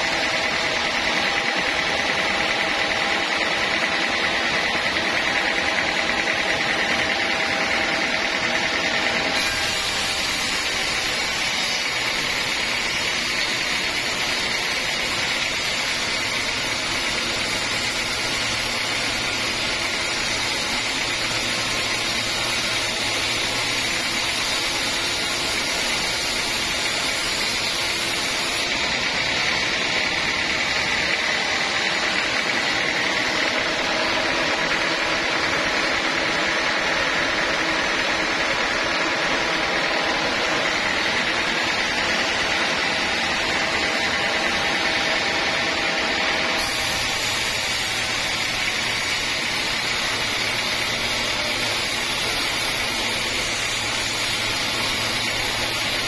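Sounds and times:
bright hiss: 9.4 - 28.7, 46.6 - 56.0.

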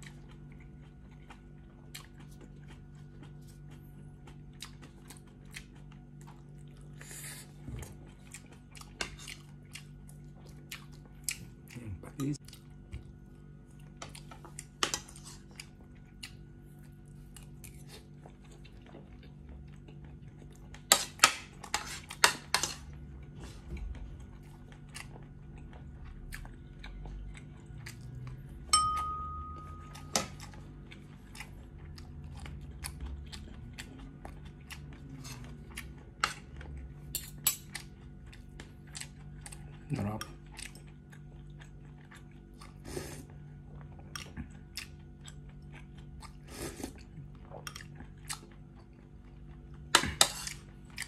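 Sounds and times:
chewing and mouth noises: 0.0 - 28.7, 29.5 - 51.0
short ringing tone: 28.7 - 30.2.

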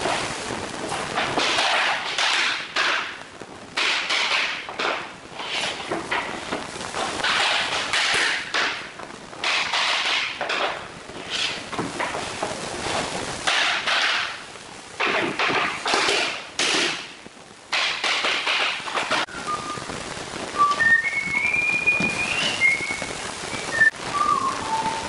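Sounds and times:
floor planks scraping: 0.0 - 3.2, 3.8 - 14.4
person whistling a tune: 19.3 - 19.9, 20.6 - 25.0.

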